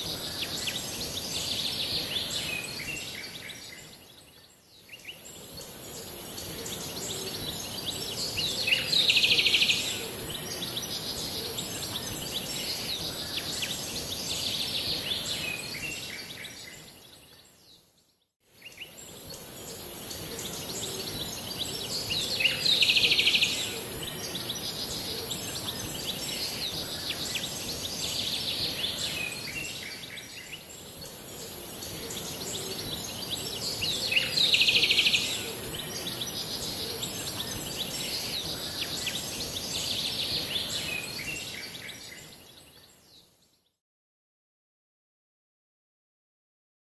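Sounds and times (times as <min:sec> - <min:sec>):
steady high hiss: 0:05.0 - 0:16.7, 0:18.6 - 0:42.5.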